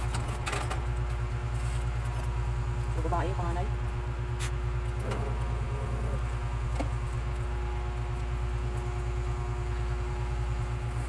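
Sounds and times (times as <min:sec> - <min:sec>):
machine hum: 0:00.0 - 0:11.0.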